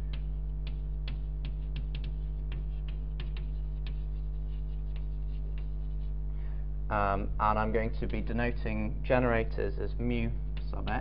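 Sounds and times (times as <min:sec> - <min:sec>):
chalk tapping on blackboard: 0:00.0 - 0:06.1
electrical mains hum: 0:00.0 - 0:11.0.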